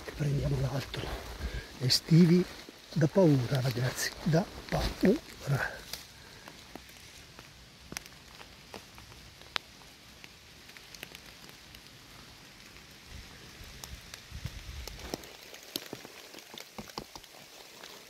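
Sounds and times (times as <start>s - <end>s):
rain pattering on leaves: 0.0s - 18.0s.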